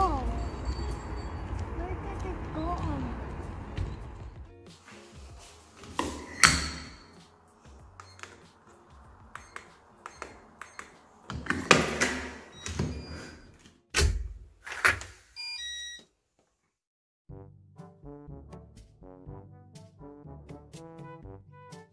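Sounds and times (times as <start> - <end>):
electronic lock chime beeps: 9.4 - 11.0, 15.4 - 16.0.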